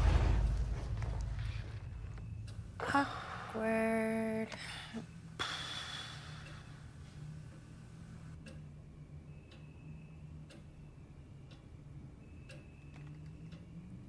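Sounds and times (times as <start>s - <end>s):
low steady hum: 0.0s - 14.0s
clock ticking: 6.3s - 8.8s, 10.3s - 13.8s.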